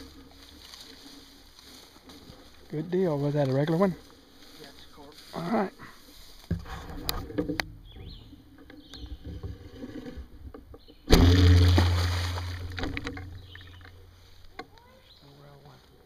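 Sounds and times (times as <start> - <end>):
water sloshing and knocks: 6.4 - 14.1
loud splash: 11.1 - 12.8
fish thrashing in water: 11.1 - 13.8.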